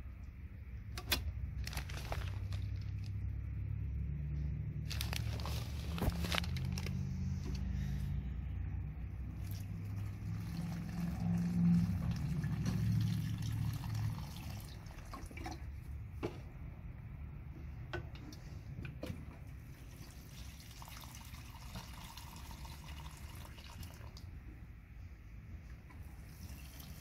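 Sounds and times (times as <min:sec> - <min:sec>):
water pouring onto soil: 0:09.3 - 0:15.5.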